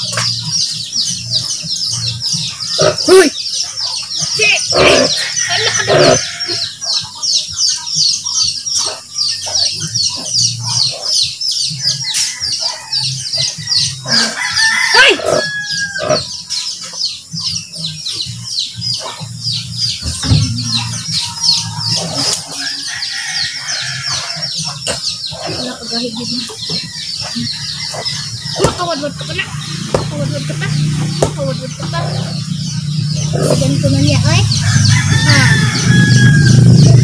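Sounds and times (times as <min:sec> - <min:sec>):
chickens clucking: 0:00.0 - 0:37.0
rooster crowing: 0:05.1 - 0:07.0, 0:11.9 - 0:16.3, 0:21.8 - 0:24.6, 0:34.5 - 0:37.0
fast high-pitched chirping: 0:15.4 - 0:23.0.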